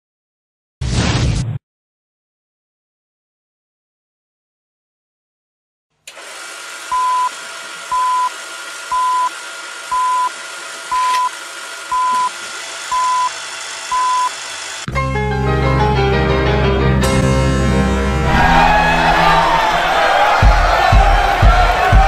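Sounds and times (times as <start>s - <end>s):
short high beeps: 10.9s - 11.3s, 13.9s - 14.3s
music: 14.9s - 22.0s.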